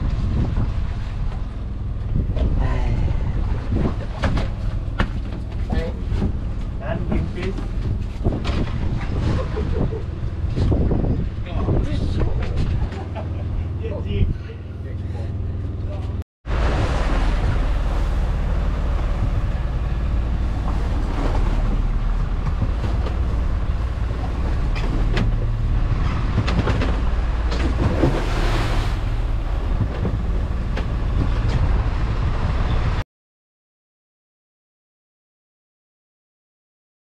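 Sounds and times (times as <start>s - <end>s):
boat engine running: 0.0s - 33.0s
strong wind: 0.0s - 33.0s
waves breaking against hull: 0.0s - 33.0s
knocks and splashes: 3.3s - 11.0s, 16.5s - 31.9s.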